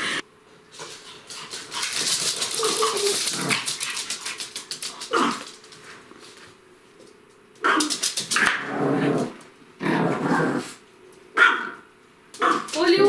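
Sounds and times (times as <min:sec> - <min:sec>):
dogs scrabbling on floor: 0:00.8 - 0:08.6, 0:12.4 - 0:13.0
dog bark: 0:11.4 - 0:11.8.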